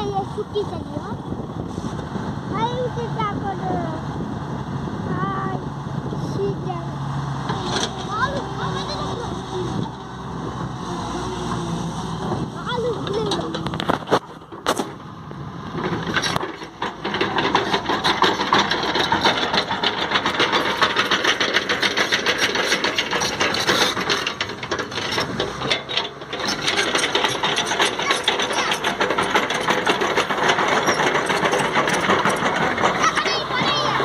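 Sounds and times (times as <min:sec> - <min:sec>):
excavator tracks clattering: 0:07.4 - 0:34.0.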